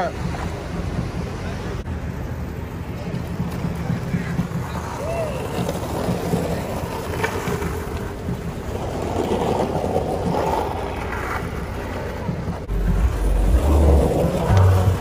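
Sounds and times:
car traffic: 0:00.0 - 0:15.0
longboard wheels rolling on asphalt: 0:00.0 - 0:15.0
heavy low rumble: 0:12.6 - 0:15.0.

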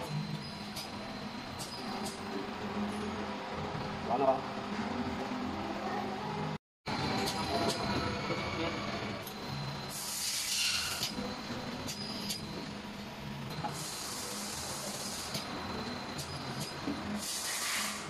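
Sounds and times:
compressed air hissing: 0:09.9 - 0:11.1, 0:13.7 - 0:15.4, 0:17.2 - 0:18.0.

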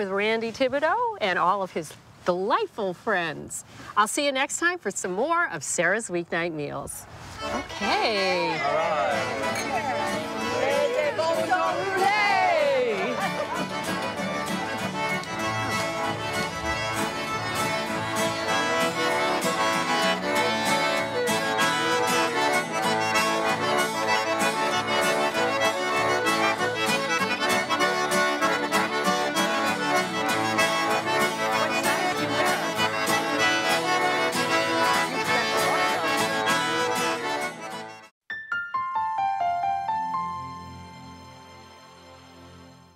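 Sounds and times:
fiddle playing lively tune: 0:07.2 - 0:38.1, 0:39.8 - 0:42.9
button accordion: 0:07.3 - 0:38.1, 0:39.9 - 0:42.9.

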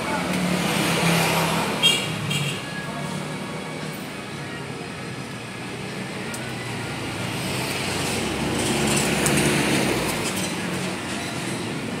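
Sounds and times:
vehicle engine and tyre rumble: 0:02.6 - 0:12.0.

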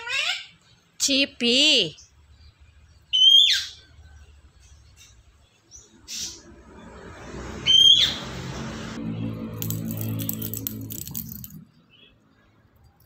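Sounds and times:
parrot whistled calls: 0:03.1 - 0:03.8.

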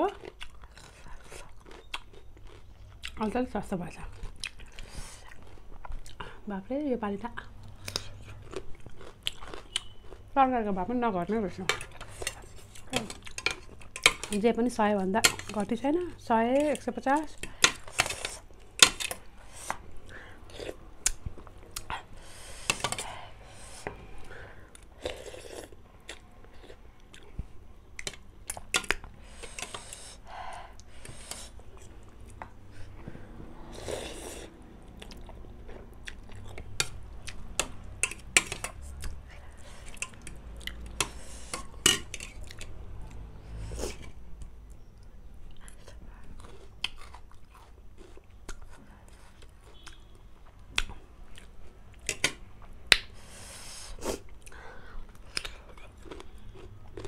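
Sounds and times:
chewing noodles: 0:00.1 - 0:03.2, 0:07.8 - 0:10.3, 0:45.6 - 0:51.6, 0:54.1 - 0:57.0.

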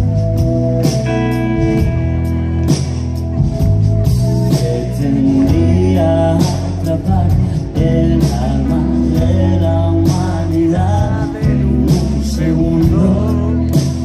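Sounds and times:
electric guitars: 0:00.0 - 0:14.0
steady drum beat: 0:00.0 - 0:14.0
man singing: 0:04.2 - 0:14.0.

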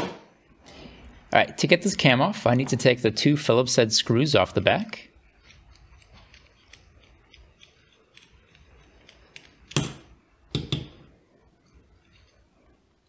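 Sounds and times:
screwdriver clicks and scrapes: 0:05.4 - 0:09.9.

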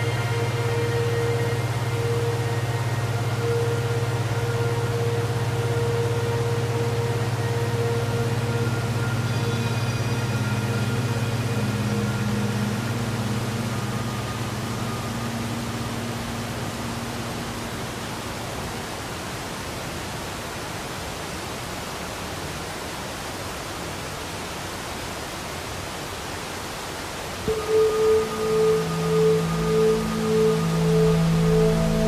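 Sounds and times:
sustained music notes: 0:00.0 - 0:18.8, 0:27.5 - 0:32.0
waterfall rushing: 0:00.0 - 0:32.0.

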